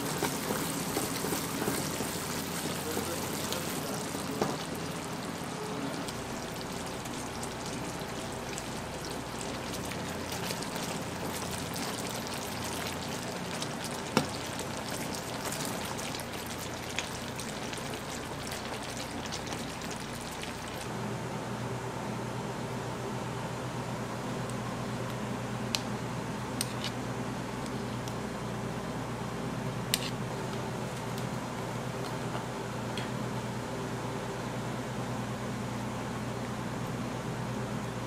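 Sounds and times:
caramel bubbling and crackling: 0.0s - 20.9s.

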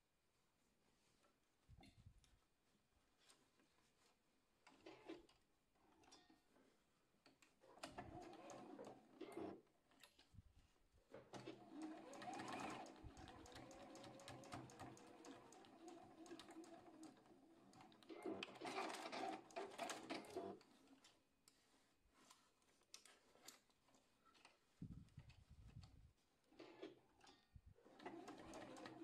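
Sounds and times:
sewing machine stitching: 7.7s - 9.6s, 11.3s - 21.0s, 26.6s - 29.0s.

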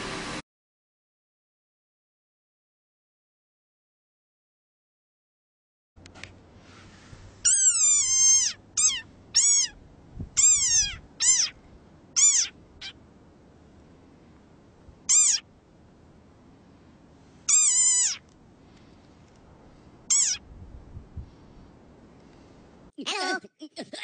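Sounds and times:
frog calling shrill cries: 7.4s - 9.8s, 10.4s - 11.6s, 12.2s - 13.0s, 15.0s - 15.5s, 17.5s - 18.3s, 20.1s - 20.5s.

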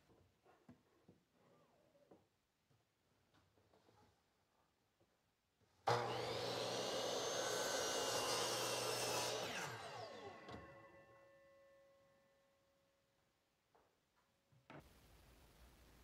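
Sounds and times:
miter saw cutting wood: 5.9s - 11.0s.

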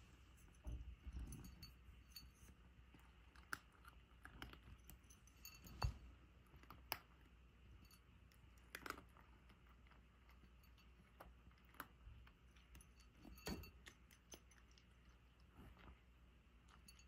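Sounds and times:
cat crunching dry kibble: 2.8s - 5.2s, 6.3s - 7.5s, 8.1s - 16.9s.

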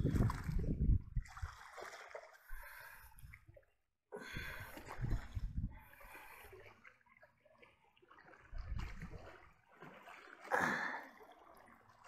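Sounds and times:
low rumble in gusts: 0.0s - 1.4s
water splashing and lapping: 0.0s - 12.0s.

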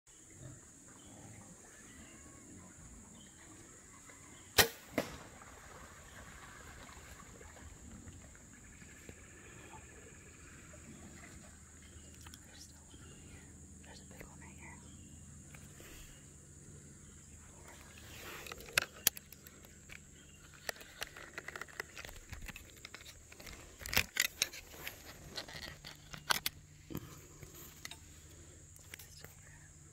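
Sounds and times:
arrow striking target: 4.6s - 5.3s
bowstring snap: 4.6s - 5.3s
handling noise clicks and rustles: 17.8s - 28.1s.

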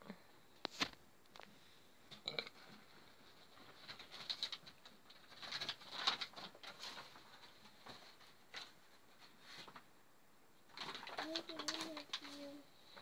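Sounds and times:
cardboard and paper rustling: 2.6s - 9.9s, 10.7s - 13.0s.

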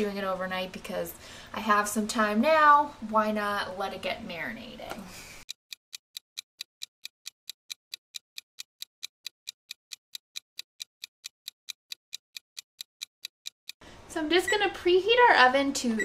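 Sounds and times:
steady clock ticking: 5.4s - 13.8s.

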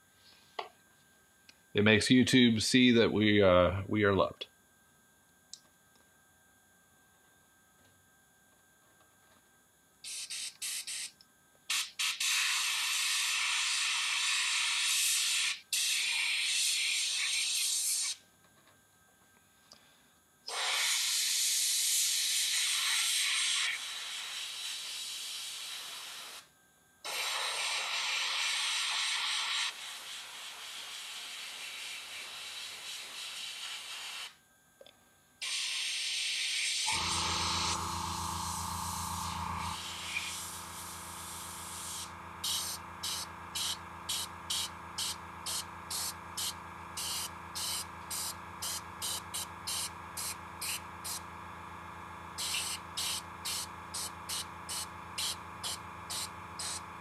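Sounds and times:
airbrush spraying paint: 10.1s - 11.1s, 11.7s - 18.2s, 20.5s - 26.4s, 27.1s - 34.4s, 35.4s - 51.2s, 52.3s - 57.0s
low motor hum: 36.9s - 57.0s.

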